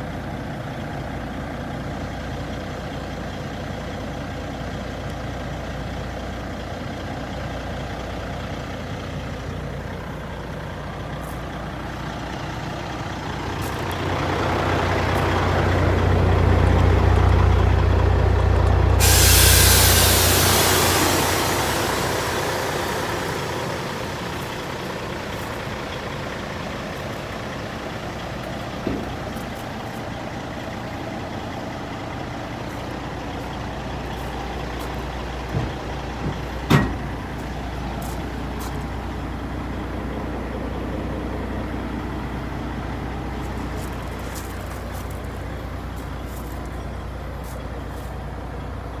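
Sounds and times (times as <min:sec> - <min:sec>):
diesel truck engine idling: 0:00.0 - 0:49.0
hiss: 0:19.0 - 0:25.8.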